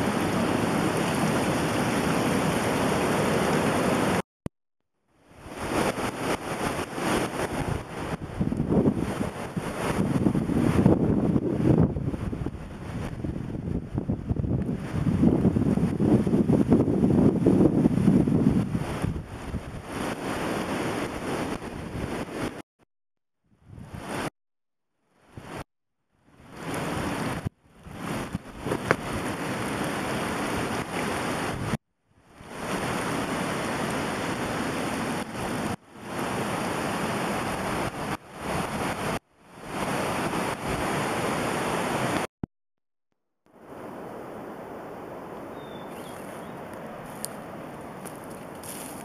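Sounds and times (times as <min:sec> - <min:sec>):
steady rushing noise: 0:05.4 - 0:22.6.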